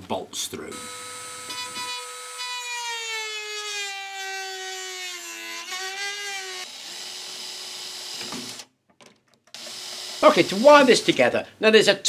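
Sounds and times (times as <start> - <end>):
rotary tool cutting plastic: 9.5 - 11.2.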